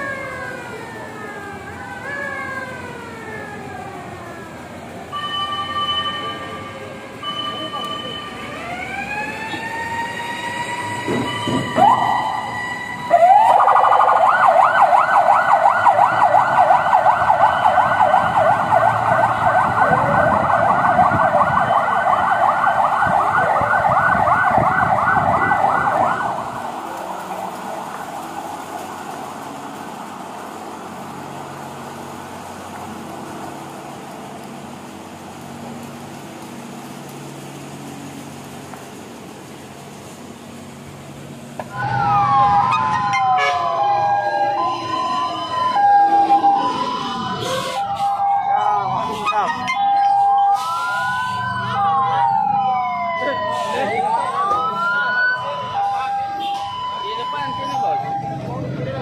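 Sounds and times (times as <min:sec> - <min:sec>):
siren wailing and yelping: 0:07.2 - 0:26.8, 0:41.7 - 0:59.0.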